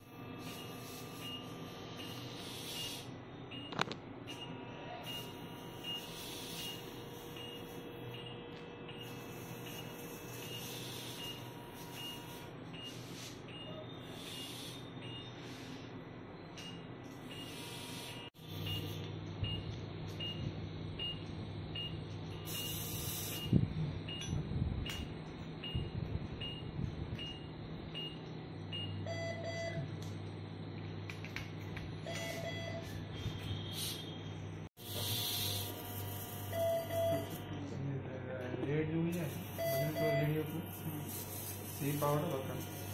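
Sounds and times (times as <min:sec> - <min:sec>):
monitor pulse beeps: 0:00.4 - 0:15.8, 0:18.5 - 0:30.0, 0:32.0 - 0:34.4, 0:36.5 - 0:37.5, 0:39.4 - 0:40.5.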